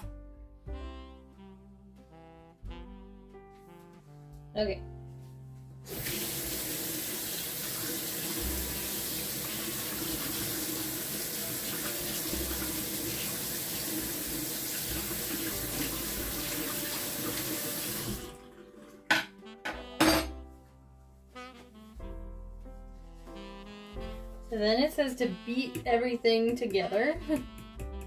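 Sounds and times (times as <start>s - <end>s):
tap water running into sink: 5.9s - 19.3s.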